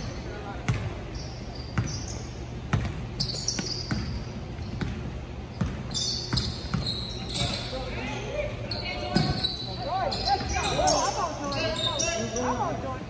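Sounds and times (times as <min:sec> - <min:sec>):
basketball bouncing on gym court: 0:00.5 - 0:07.6, 0:09.0 - 0:11.0
short high squeaks: 0:03.2 - 0:04.0, 0:05.9 - 0:07.8, 0:08.7 - 0:12.5.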